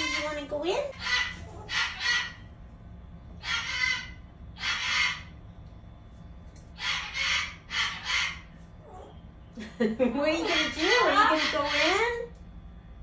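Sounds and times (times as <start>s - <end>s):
cockatoo squawking: 0.0s - 2.5s, 3.4s - 5.4s, 6.8s - 9.1s, 10.4s - 12.3s.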